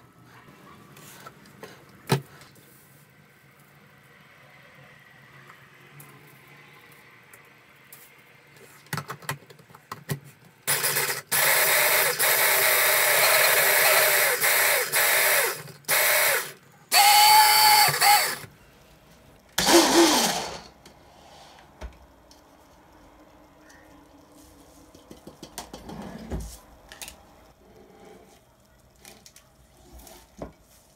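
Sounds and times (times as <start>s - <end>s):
hand blender chopping: 17.0s - 18.4s, 19.6s - 20.6s.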